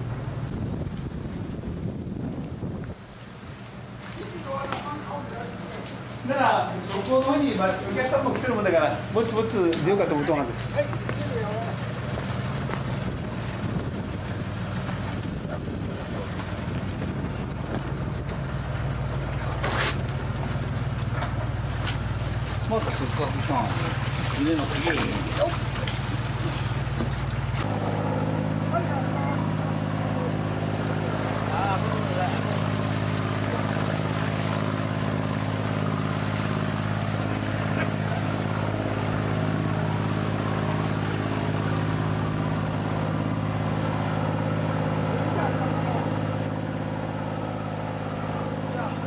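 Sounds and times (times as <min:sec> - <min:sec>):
boat engine droning: 0:00.0 - 0:49.0.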